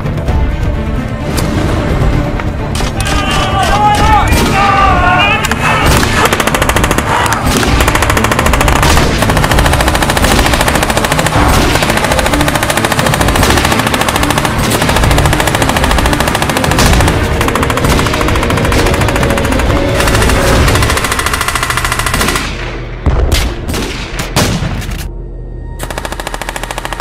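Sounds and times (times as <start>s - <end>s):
machine gun firing bursts: 5.9s - 22.7s, 25.8s - 27.0s.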